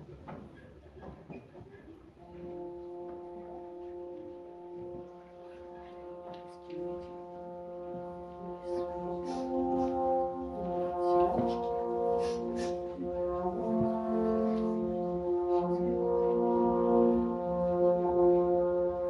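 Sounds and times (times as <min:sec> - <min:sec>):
slow music of sustained chords: 0:02.2 - 0:19.0.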